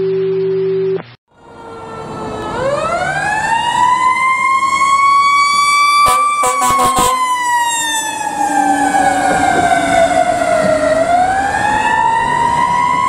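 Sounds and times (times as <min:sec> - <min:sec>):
mechanical siren wailing: 0:01.4 - 0:13.0
air horn blasts: 0:05.9 - 0:07.6.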